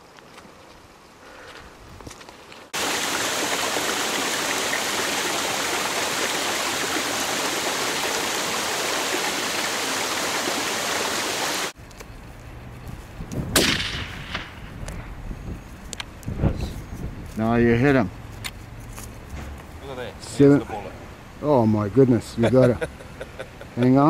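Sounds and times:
water hissing: 2.8 - 11.8
rifle shot: 13.5 - 14.6.

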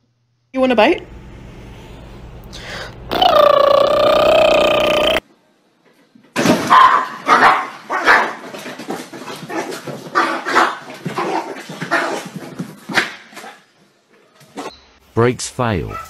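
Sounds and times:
small dog barking: 6.7 - 8.4.

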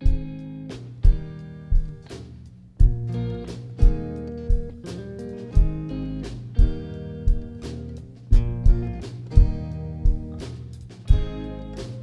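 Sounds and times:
drum kit hits: 0.0 - 12.0
electric guitar: 0.0 - 12.0
heavy low drum beat: 0.0 - 12.0
strummed acoustic guitar: 0.0 - 12.0
keyboard: 8.3 - 12.0.

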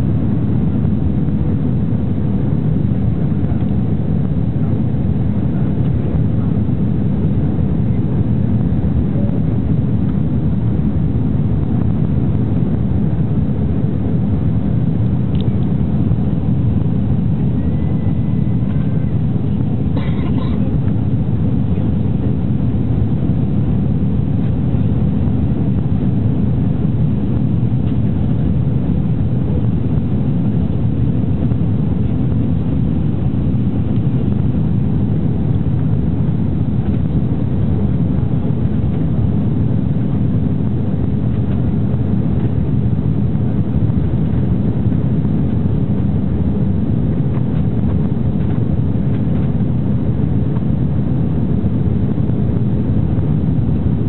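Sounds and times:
airplane cabin engine rumble: 0.0 - 54.0.

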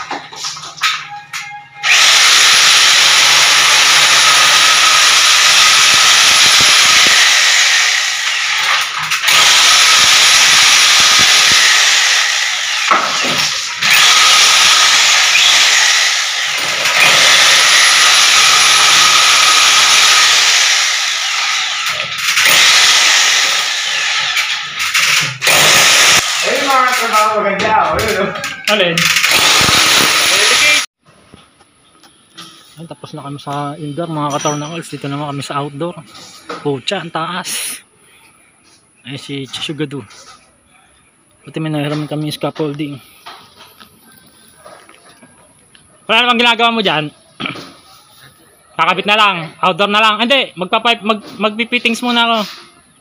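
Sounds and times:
electric drill motor whine: 1.8 - 26.5, 29.2 - 30.8.

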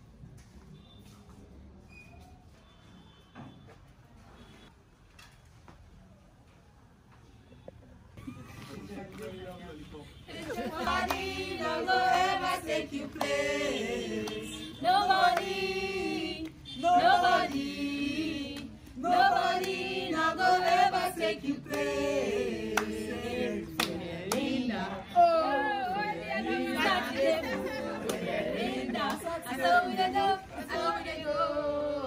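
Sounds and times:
group singing unaccompanied: 10.3 - 32.0
handclaps: 10.9 - 11.3, 15.2 - 15.6, 19.6 - 19.8, 21.7 - 21.9, 23.7 - 24.5, 28.0 - 28.3.

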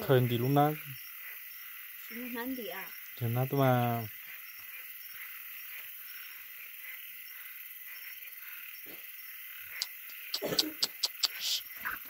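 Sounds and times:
frogs and insects trilling: 0.0 - 12.0
faint short chirps: 9.8 - 12.0.

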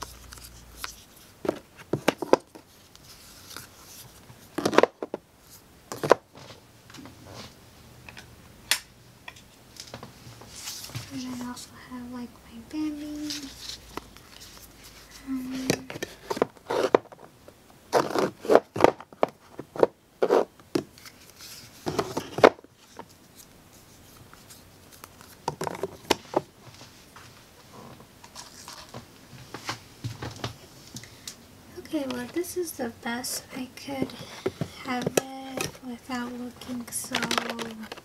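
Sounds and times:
plastic trays clicking and clacking: 36.8 - 38.0.

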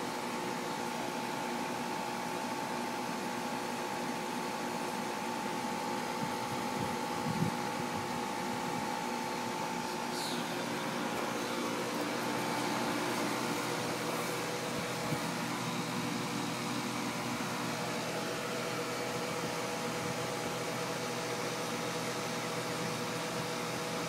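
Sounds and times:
heat pump humming: 0.0 - 24.0
fan rushing: 6.0 - 23.5.

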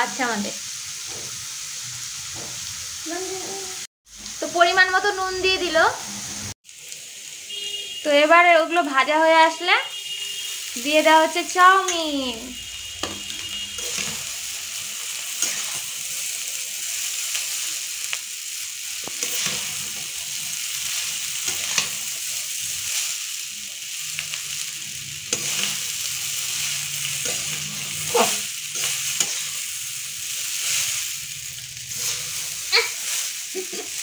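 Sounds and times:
hot oil sizzling: 0.0 - 34.0
metal spatula scraping a pan: 12.7 - 16.3, 19.0 - 23.2, 25.2 - 31.2, 31.8 - 33.4.

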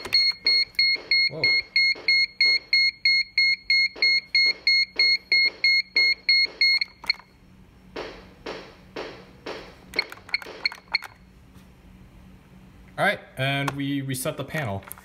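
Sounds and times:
rapid high alarm beeping: 0.0 - 7.2
keypad key beeps: 0.0 - 7.3, 10.0 - 11.2.

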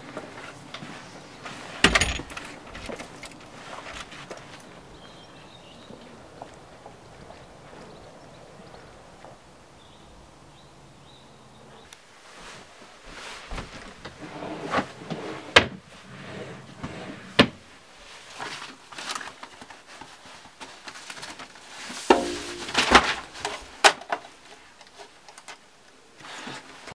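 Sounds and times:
papers rustling: 18.1 - 25.6.

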